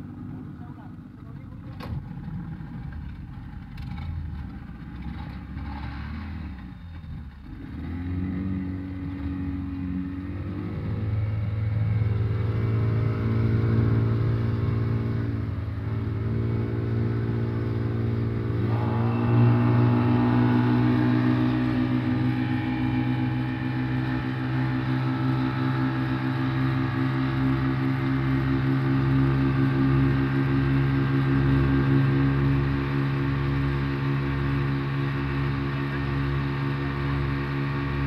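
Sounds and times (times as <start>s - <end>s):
outboard motors speeding up: 0.0s - 38.0s
water rushing along hull: 8.7s - 38.0s.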